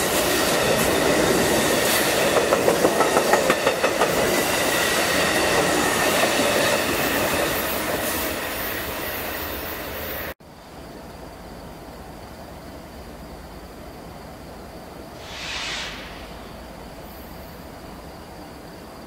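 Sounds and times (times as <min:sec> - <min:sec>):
train rushing past: 0:00.0 - 0:10.4, 0:15.1 - 0:18.2
faint steady squeal: 0:15.5 - 0:19.0.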